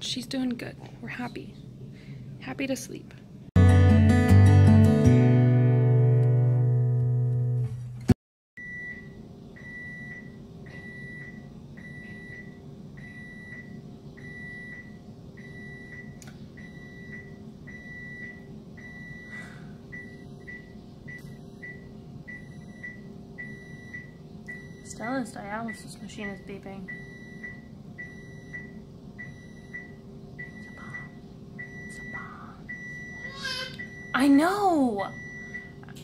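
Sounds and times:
guitar music: 3.6s - 8.1s
steady low hum: 8.0s - 36.0s.

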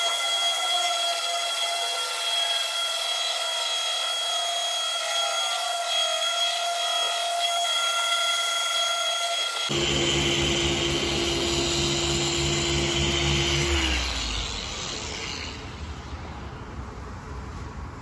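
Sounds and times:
polisher motor whining: 9.4s - 15.9s.

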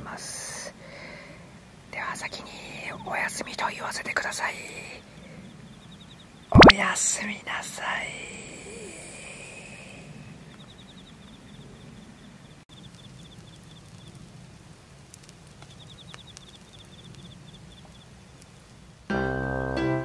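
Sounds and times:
insects trilling: 0.1s - 18.8s
campfire embers ticking: 12.7s - 19.1s.

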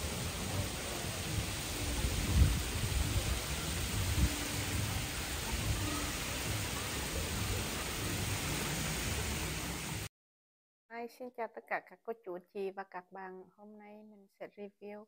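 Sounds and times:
water spilling over pool edge: 0.0s - 10.1s
wind buffeting microphone: 2.0s - 5.7s.

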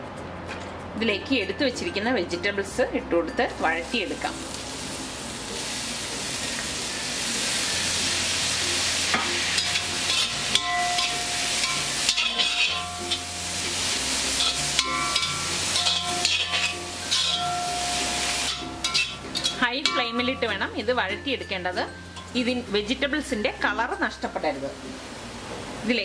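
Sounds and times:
vegetables sizzling in hot oil: 3.6s - 26.0s
spatula scraping a pan: 9.6s - 13.4s, 14.3s - 20.2s.

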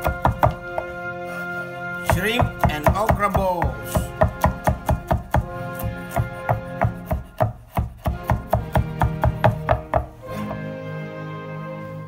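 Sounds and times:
knife chopping on wooden board: 0.0s - 0.9s, 2.1s - 10.6s
background music: 0.0s - 12.0s.

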